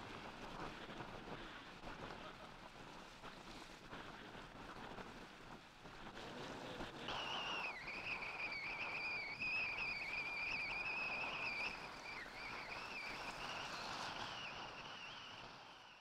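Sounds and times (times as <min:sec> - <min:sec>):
wind and water hiss: 0:00.0 - 0:16.0
boat engines whining: 0:07.1 - 0:13.4.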